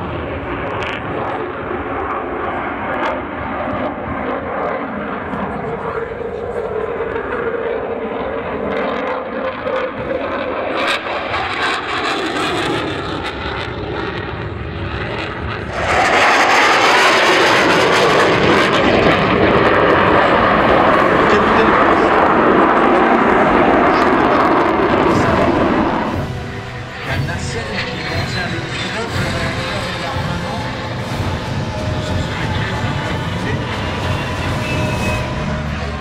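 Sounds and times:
jet aircraft flying overhead: 0:00.0 - 0:36.0.

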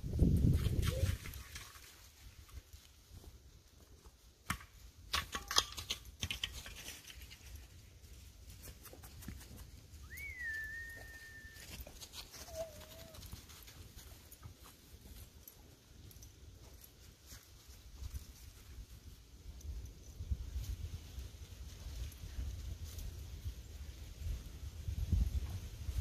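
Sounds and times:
whistle: 0:10.0 - 0:11.9.

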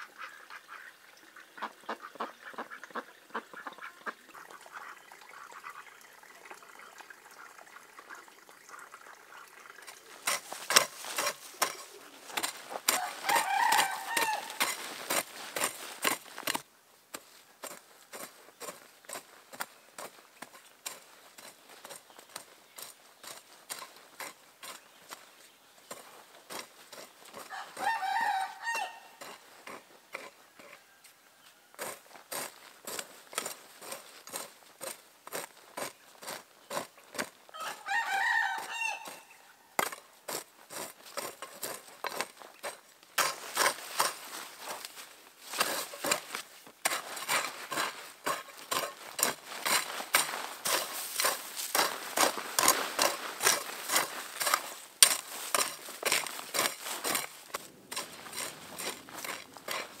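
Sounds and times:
chicken clucking: 0:10.5 - 0:14.8, 0:27.4 - 0:30.8.

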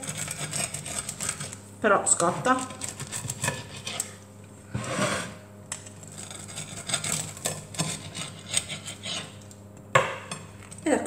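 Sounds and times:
cutter scraping on plate: 0:00.0 - 0:01.6, 0:02.2 - 0:09.6
pizza cutter crunching crust: 0:00.0 - 0:01.6, 0:02.2 - 0:04.2, 0:04.8 - 0:09.6.

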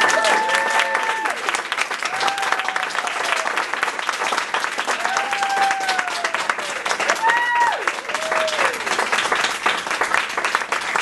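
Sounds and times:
audience applauding and cheering: 0:00.0 - 0:11.0.

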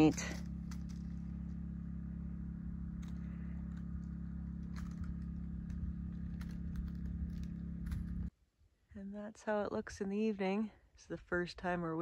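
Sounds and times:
engine idling: 0:00.0 - 0:08.3.

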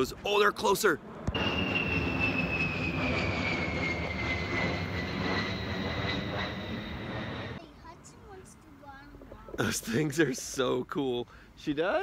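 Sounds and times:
jet passing low overhead: 0:00.1 - 0:07.7.

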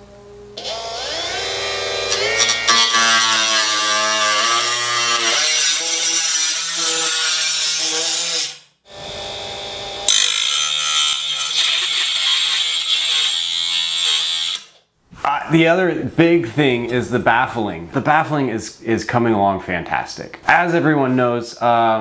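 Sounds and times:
cut-off tool cutting metal: 0:00.6 - 0:08.6, 0:10.0 - 0:14.8.

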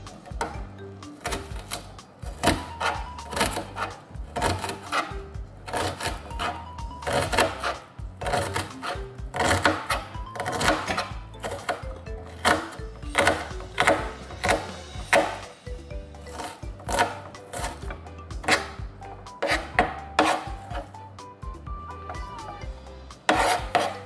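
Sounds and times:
background music: 0:00.0 - 0:24.0
knife chopping onion on board: 0:01.2 - 0:11.8, 0:12.4 - 0:15.5, 0:16.3 - 0:18.8, 0:19.4 - 0:20.9, 0:23.3 - 0:24.0.

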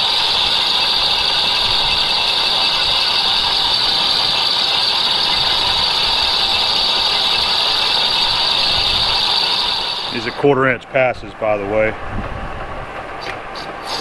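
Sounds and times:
high-pitched lathe cutting whine: 0:00.0 - 0:10.8
lathe drive running: 0:00.0 - 0:14.0.

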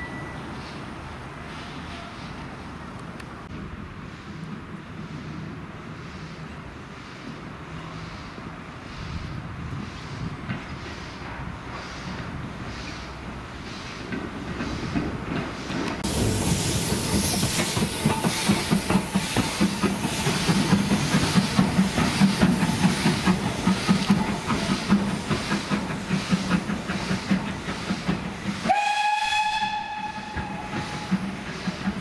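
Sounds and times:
steam locomotive chuffing: 0:03.8 - 0:32.0
steam whistle blast: 0:28.6 - 0:31.2.

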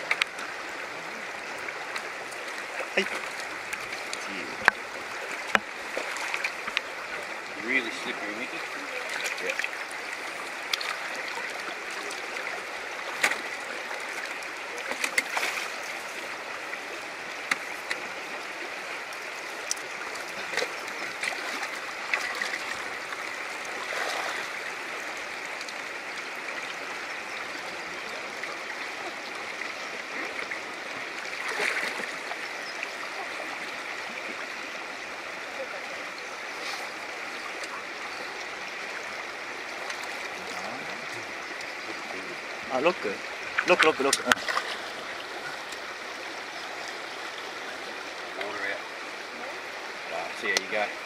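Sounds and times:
river current rushing around rocks: 0:00.0 - 0:51.0
splashes in water: 0:01.9 - 0:16.1, 0:19.7 - 0:24.6, 0:31.3 - 0:34.2, 0:39.8 - 0:45.9.

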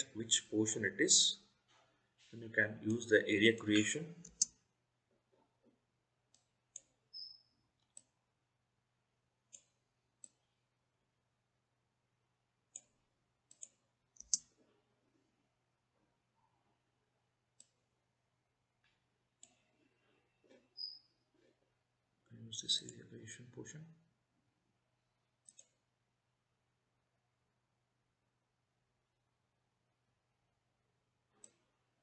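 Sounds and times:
computer mouse clicking: 0:03.8 - 0:04.6, 0:06.3 - 0:08.2, 0:09.5 - 0:10.5, 0:12.7 - 0:14.5, 0:17.5 - 0:17.8, 0:25.4 - 0:25.9, 0:31.3 - 0:31.7.

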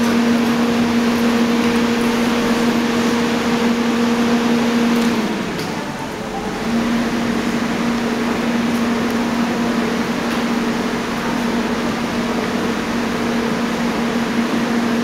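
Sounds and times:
broad rushing noise: 0:00.0 - 0:15.0
low machinery drone: 0:00.0 - 0:15.0.

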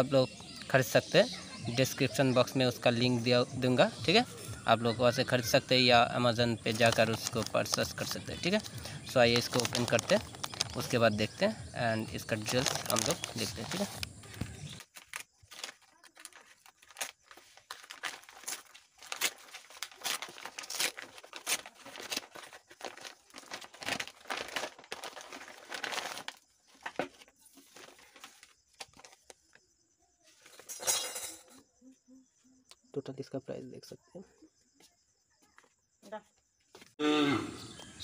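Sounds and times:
paper crumpling and crinkling: 0:06.6 - 0:11.4, 0:12.1 - 0:29.5
paper sheet rustling: 0:06.6 - 0:11.4, 0:12.2 - 0:29.5, 0:30.3 - 0:30.9
paper envelope tearing: 0:06.7 - 0:11.0, 0:12.2 - 0:29.2.

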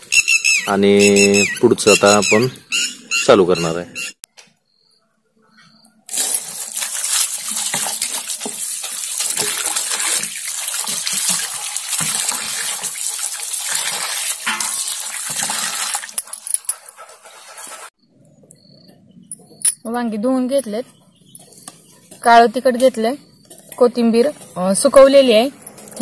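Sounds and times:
tap water running onto steel plate: 0:06.1 - 0:16.6
splashing of hands rubbing vegetables: 0:06.1 - 0:17.9.

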